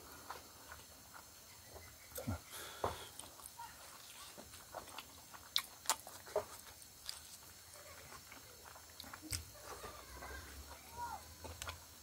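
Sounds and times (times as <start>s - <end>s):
man chewing: 3.1s - 9.5s.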